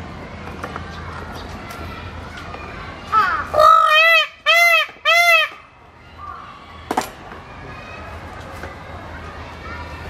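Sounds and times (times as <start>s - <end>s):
peacock calling: 3.2s - 5.6s.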